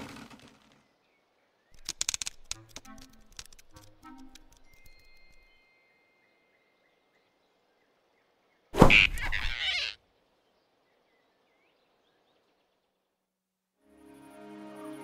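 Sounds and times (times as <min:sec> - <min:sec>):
cartoon whoosh with thump: 0:08.8 - 0:09.9.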